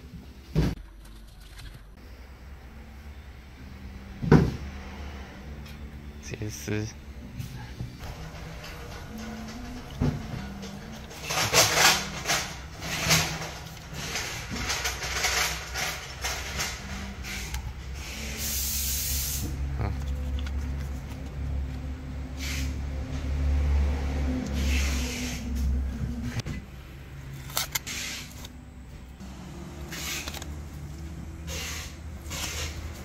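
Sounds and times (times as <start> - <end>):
low hum: 0.0 - 18.6
rustles and scrapes: 7.4 - 21.8.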